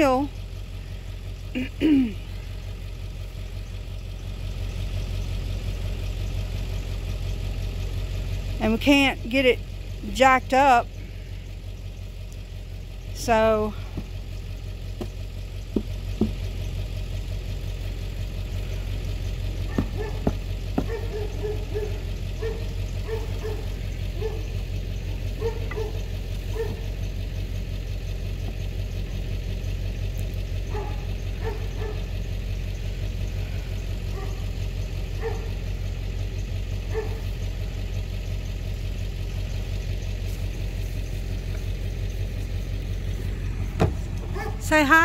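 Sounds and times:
vehicle engine idling: 0.0 - 45.0
faint high calls: 18.7 - 27.2.

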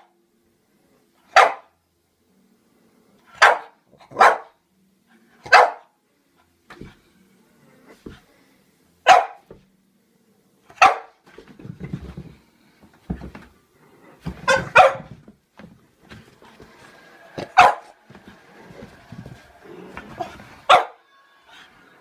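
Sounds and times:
dog barking: 1.3 - 1.8, 3.4 - 4.6, 5.4 - 5.9, 9.0 - 9.5, 10.7 - 11.2, 14.4 - 15.2, 17.5 - 18.0, 20.2 - 21.0.

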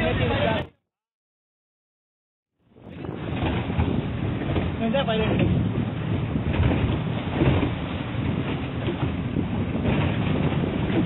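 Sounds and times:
outboard motor rumbling: 0.0 - 0.8, 2.5 - 11.0
wind buffeting microphone: 2.6 - 11.0.

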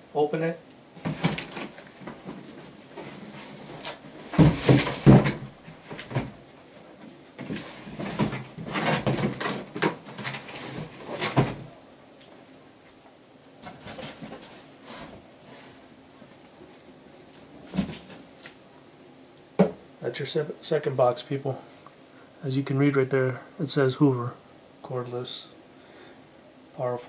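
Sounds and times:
cardboard rustling and knocks: 1.0 - 6.4, 7.4 - 11.7, 17.4 - 18.3.

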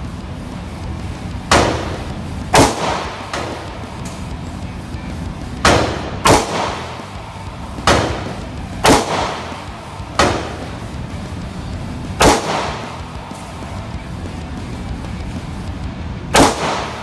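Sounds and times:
pistol shots echoing: 1.5 - 3.8, 5.6 - 7.2, 7.8 - 10.8, 12.2 - 13.2, 16.3 - 17.0.

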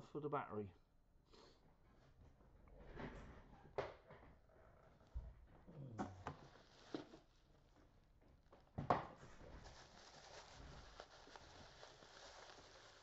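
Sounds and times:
faint steady hiss: 8.8 - 13.0.

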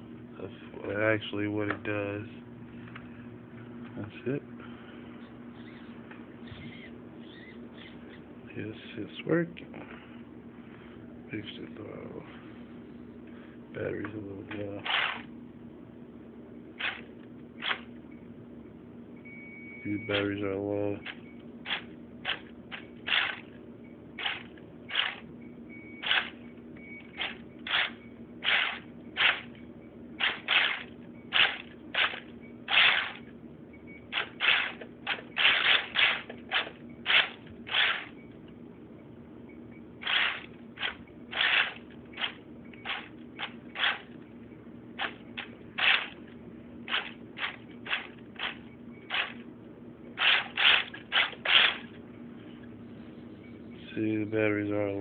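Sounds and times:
electric motor whirring in blips: 14.8 - 15.3, 16.8 - 17.9, 21.0 - 23.6, 24.2 - 25.3, 26.0 - 26.4, 27.0 - 29.6, 30.2 - 33.3, 34.0 - 38.3, 40.0 - 44.1, 45.0 - 46.3, 46.9 - 49.5, 50.2 - 52.0.

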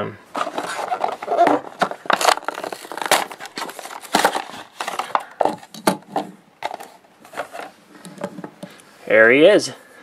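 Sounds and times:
packaging torn and crumpled: 0.4 - 5.7.

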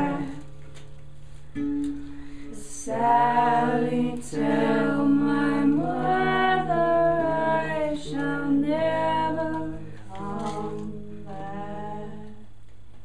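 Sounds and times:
voices singing in harmony: 0.0 - 0.5, 2.5 - 12.6
steady low hum: 0.0 - 13.0.

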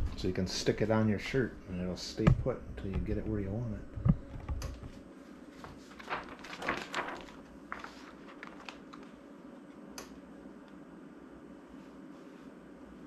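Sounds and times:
vinyl sheet rustling and crinkling: 4.0 - 9.4.

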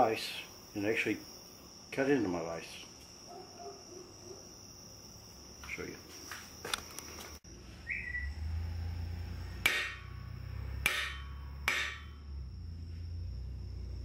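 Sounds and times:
knife blade striking metal vise: 9.6 - 10.2, 10.8 - 12.3.

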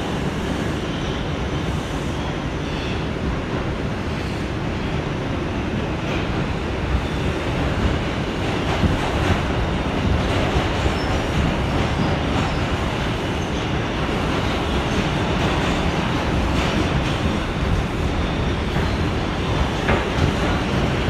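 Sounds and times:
subway train rumbling on rails: 0.0 - 21.0.

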